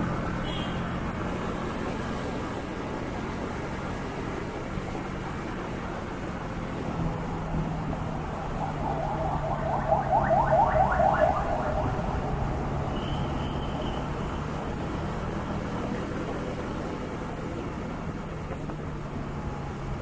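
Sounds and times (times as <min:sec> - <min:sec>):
motorcycle engine hum: 0:00.0 - 0:19.6
rising chirps: 0:08.1 - 0:12.8.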